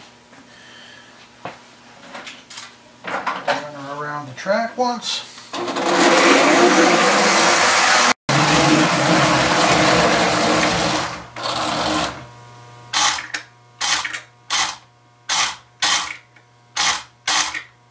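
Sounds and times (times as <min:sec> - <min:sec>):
low electric hum: 0:08.4 - 0:17.9
toy train motor whirring: 0:13.0 - 0:16.2, 0:16.8 - 0:17.7.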